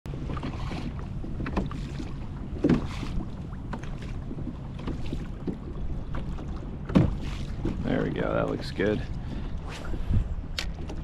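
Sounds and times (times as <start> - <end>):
wind on microphone: 0.1 - 11.0
water slapping plastic hull: 0.2 - 9.5.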